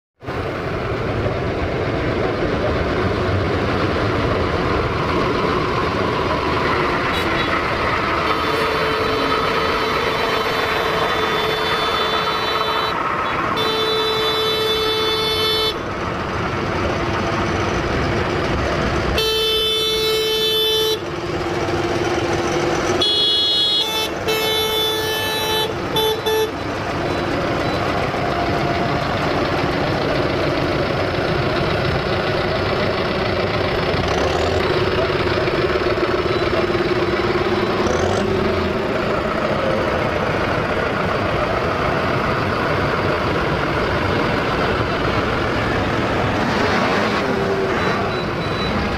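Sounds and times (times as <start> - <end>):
tractor diesel engines running: 0.2 - 48.9
tractor horns honking: 6.6 - 16.2, 19.0 - 28.2.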